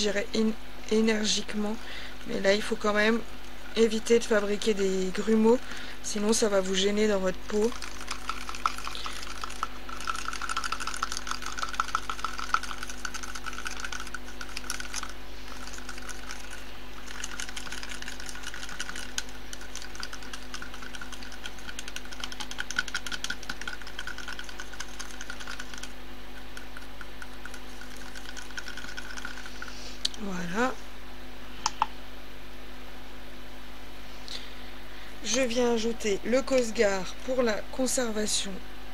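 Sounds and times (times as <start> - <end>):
metal stirrer whisking gel in cup: 6.2 - 29.8.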